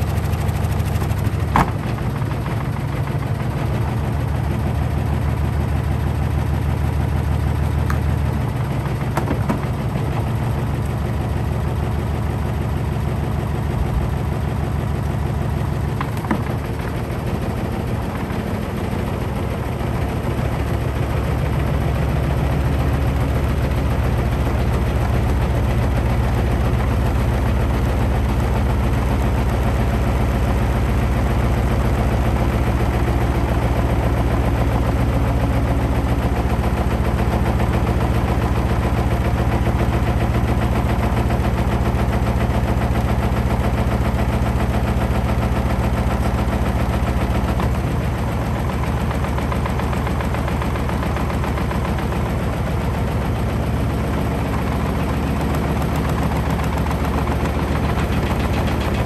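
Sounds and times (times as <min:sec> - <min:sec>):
cabinet rattling and knocking: 0:09.0 - 0:09.8, 0:15.9 - 0:17.2
washing machine drum hum: 0:14.5 - 0:19.0, 0:47.7 - 0:59.0.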